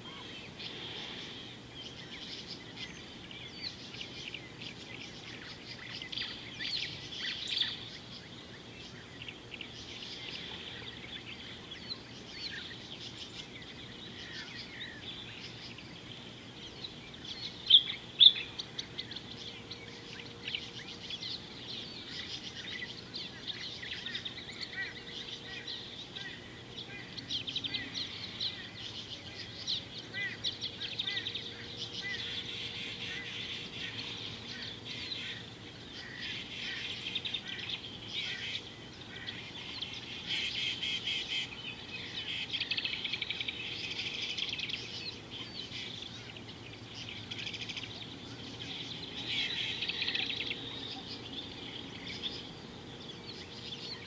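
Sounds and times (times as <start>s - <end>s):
wild birds chirping and calling: 0.0s - 54.0s.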